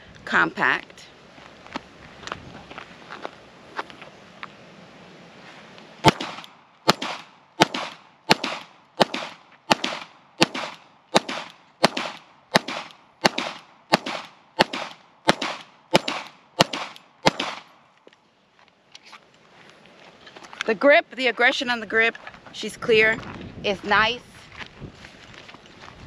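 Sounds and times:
pistol shots with echo: 6.0s - 17.7s.

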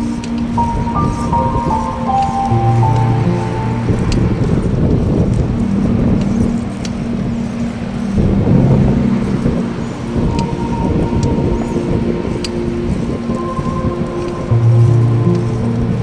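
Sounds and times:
background music with held notes: 0.0s - 16.0s
wind and road rumble: 0.0s - 16.0s.

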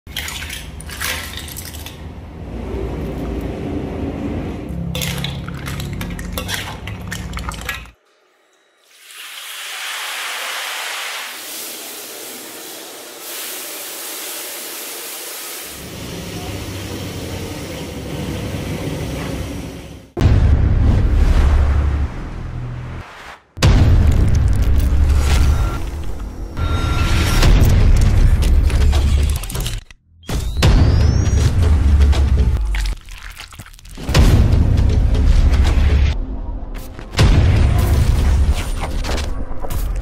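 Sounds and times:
low hum: 2.1s - 8.6s
clinking pots and utensils: 4.9s - 8.0s
kitchen clatter: 4.9s - 8.0s.

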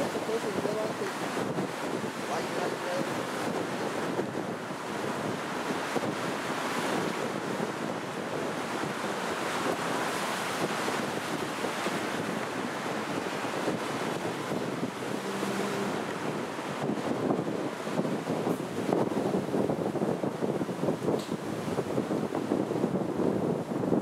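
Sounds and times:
ocean surf hissing: 0.0s - 20.7s.

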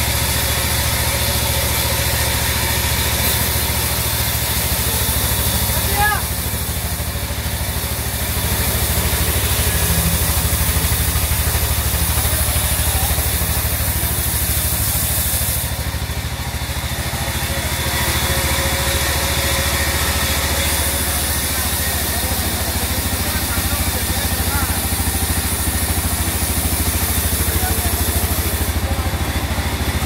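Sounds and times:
saw blade cutting hiss: 0.0s - 29.9s
band saw droning: 0.0s - 30.0s.

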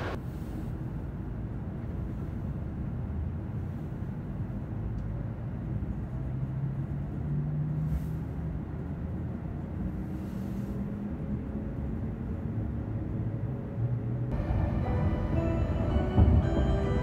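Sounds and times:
train running gear rumble: 0.0s - 17.0s
low hum rising in pitch: 14.1s - 17.0s.

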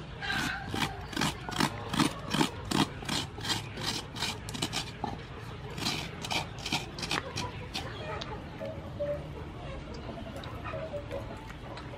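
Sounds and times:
coconut scraper rasping: 0.0s - 8.0s.

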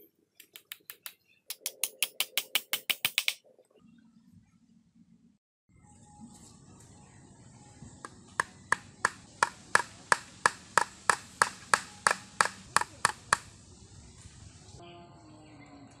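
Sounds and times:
hammer knocking on bamboo: 0.5s - 3.4s, 8.0s - 13.5s.

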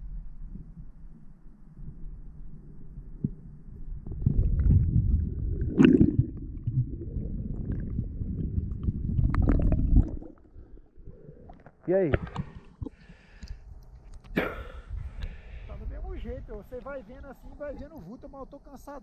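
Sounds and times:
muffled underwater rumbling: 0.0s - 13.4s.

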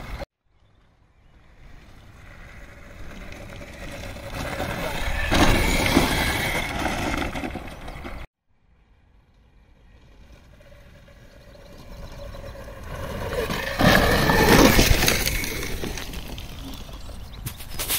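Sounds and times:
tyres crunching on dirt: 11.7s - 17.9s.

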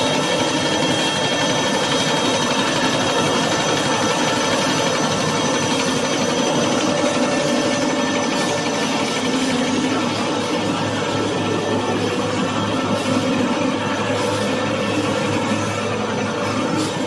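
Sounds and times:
faint steady whining tones: 0.0s - 17.0s
paper cutting machine running: 0.0s - 17.0s.

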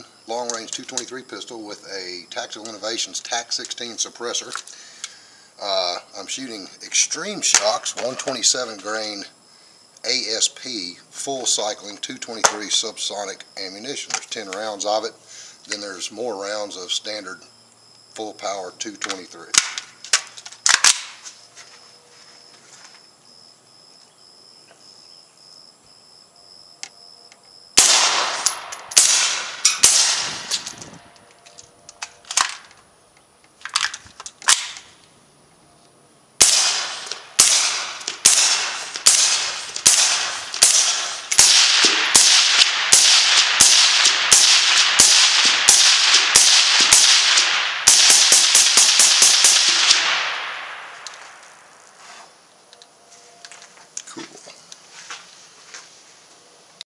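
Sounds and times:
suppressed pistol shots with echo: 27.8s - 30.7s, 36.4s - 51.0s.

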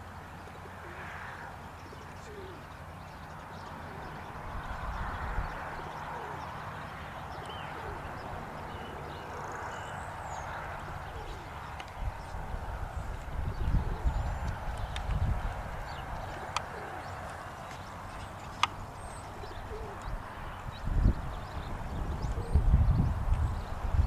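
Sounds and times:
wind rumbling on microphone: 3.2s - 24.0s
horse hooves clip-clopping: 14.4s - 20.6s.

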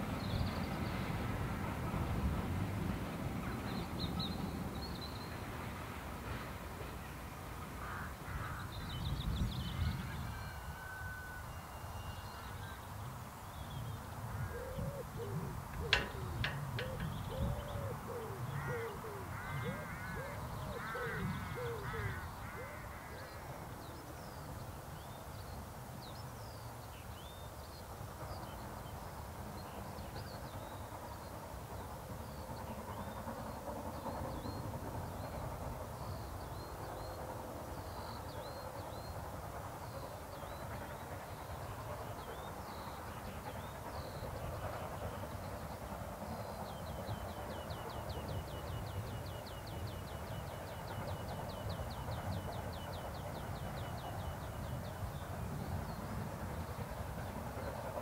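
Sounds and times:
bird low calls: 13.6s - 24.0s.

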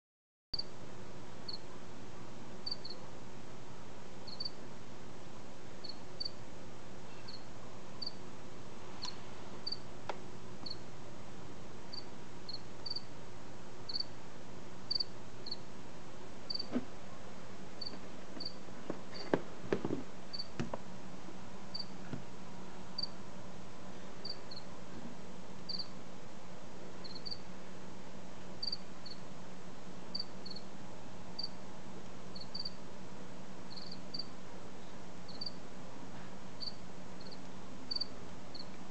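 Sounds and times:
steady low hum: 0.6s - 38.9s
cricket chirping: 2.6s - 3.0s, 4.2s - 4.6s, 5.8s - 6.4s, 7.2s - 8.2s, 9.0s - 9.8s, 11.9s - 13.1s, 13.9s - 14.1s, 14.9s - 15.6s, 16.5s - 16.7s, 17.8s - 18.6s, 20.3s - 20.5s, 21.7s - 21.9s, 23.0s - 23.2s, 24.2s - 24.7s, 25.7s - 25.9s, 27.0s - 27.5s, 28.6s - 29.2s, 30.1s - 30.7s, 31.4s - 31.6s, 32.3s - 32.8s, 33.7s - 34.3s, 35.3s - 35.6s, 36.6s - 38.7s.

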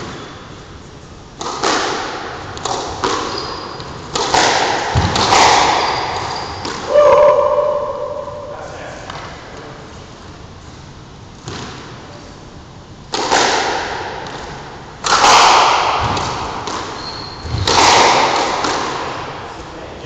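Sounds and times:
squash ball cracking on walls: 1.4s - 7.0s, 13.1s - 19.4s.

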